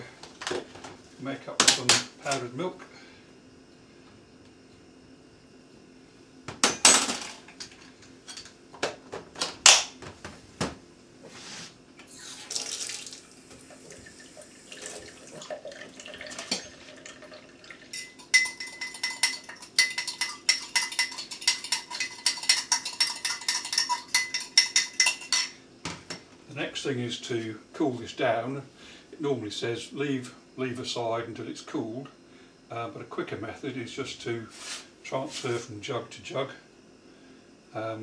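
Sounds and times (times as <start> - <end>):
containers clattering on bench: 14.9 - 26.2
spoon clinking in cup: 16.3 - 17.0, 17.9 - 25.6.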